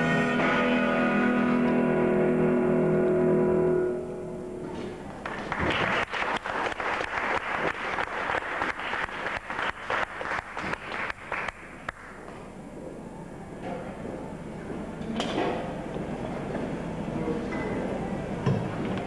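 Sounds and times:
small audience applauding: 5.1s - 12.2s.

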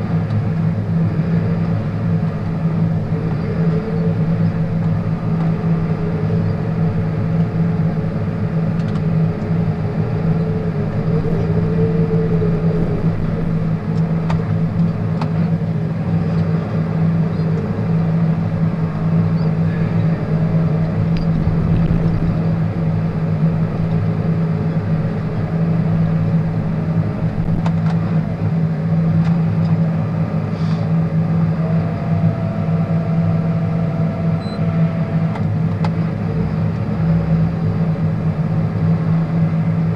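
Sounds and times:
tractor diesel engine drone: 0.0s - 39.9s
faint high whine: 0.8s - 26.6s, 30.6s - 35.4s.

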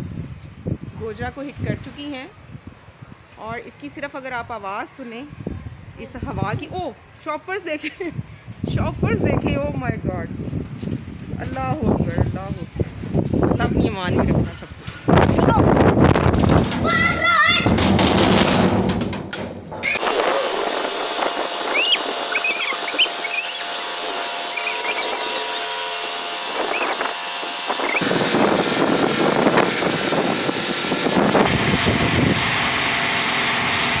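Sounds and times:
wind buffeting microphone: 0.0s - 3.6s, 5.3s - 6.9s, 8.1s - 19.0s, 19.6s - 24.3s, 26.2s - 32.7s
strong wind rushing: 8.1s - 23.3s, 27.7s - 32.5s
faint high squeaks: 21.7s - 23.8s, 24.4s - 25.8s, 26.6s - 27.1s.

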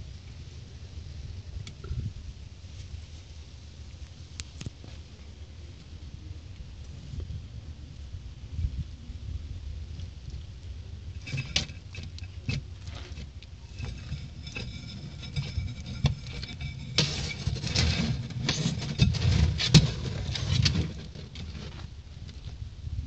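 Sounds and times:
low steady rumble: 0.0s - 23.0s
crackling rustle of peel: 11.2s - 22.6s.

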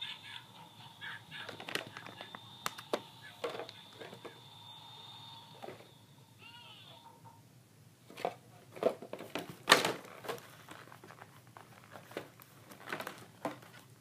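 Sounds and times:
plastic packaging crinkling: 1.5s - 2.9s, 9.7s - 13.9s.

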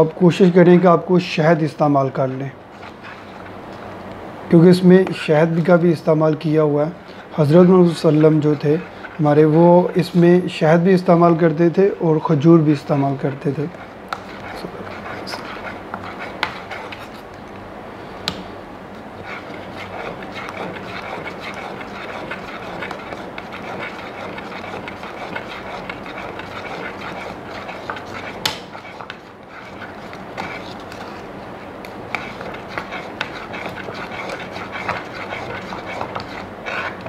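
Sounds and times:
spoon scraping porridge in pot: 13.3s - 17.3s, 19.2s - 37.0s.

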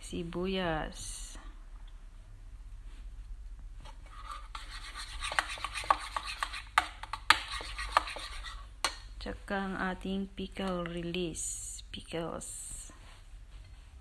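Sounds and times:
spoon stirring thick dressing: 3.9s - 9.1s.

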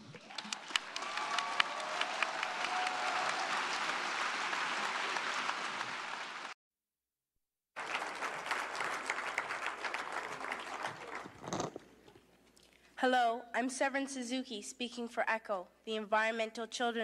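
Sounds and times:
audience applauding: 0.2s - 6.6s, 7.8s - 11.8s.

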